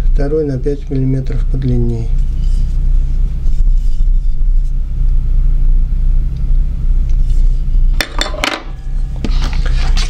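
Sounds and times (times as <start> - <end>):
low mechanical rumble: 0.0 - 10.0
pitched hum: 0.0 - 10.0.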